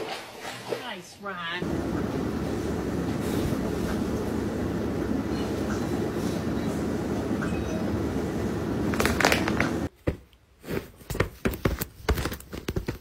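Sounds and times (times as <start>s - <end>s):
low background rumble: 1.6s - 9.9s.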